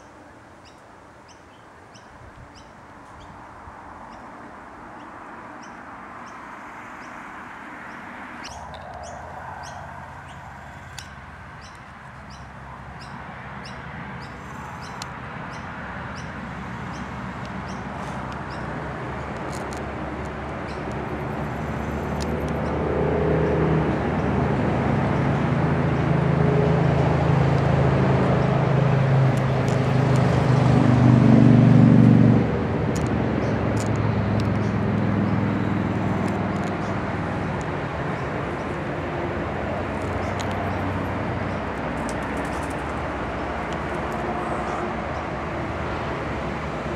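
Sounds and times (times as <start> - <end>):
high bird chirps: 7.9 - 17.8.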